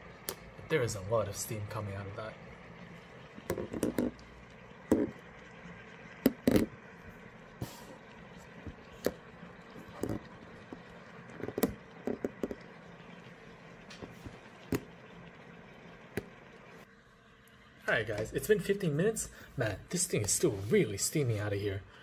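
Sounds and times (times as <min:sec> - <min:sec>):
faint steaming hiss: 0:00.0 - 0:15.6, 0:16.6 - 0:22.0
sharp pops and crackles: 0:00.2 - 0:00.5, 0:03.3 - 0:07.0, 0:07.6 - 0:16.7.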